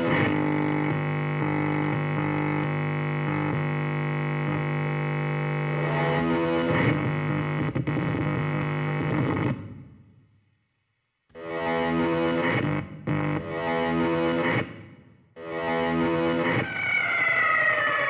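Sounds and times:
distorted electric guitar drone: 0.0 - 9.7, 11.3 - 18.0.

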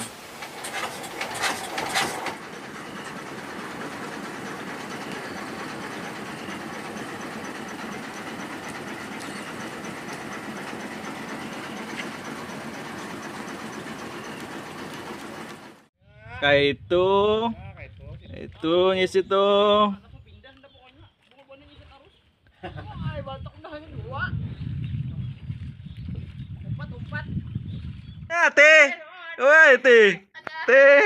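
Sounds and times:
boat engine running: 0.0 - 15.9.

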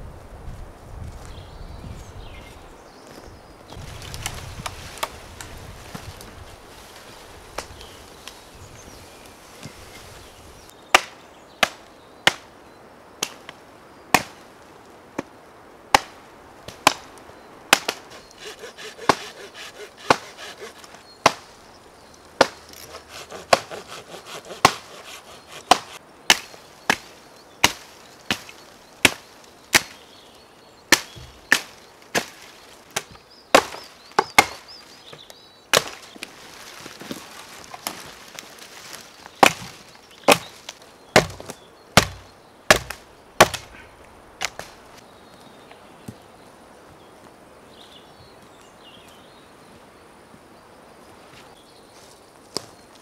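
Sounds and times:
dry twigs crackling: 3.1 - 12.4, 16.0 - 30.1, 30.9 - 45.6
hatchet chopping wood: 17.7 - 21.4, 22.4 - 30.0, 33.0 - 34.6, 35.7 - 36.0, 39.4 - 40.6, 41.2 - 43.7.

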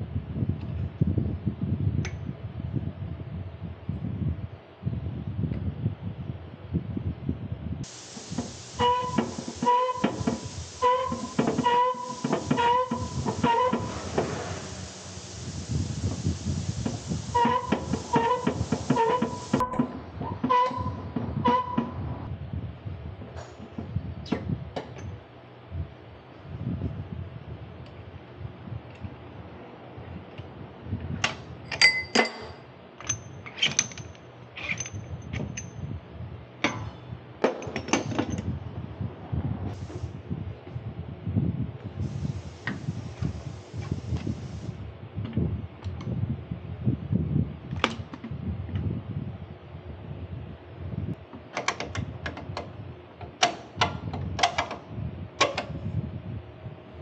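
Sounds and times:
metal tools clinking: 31.7 - 35.8.

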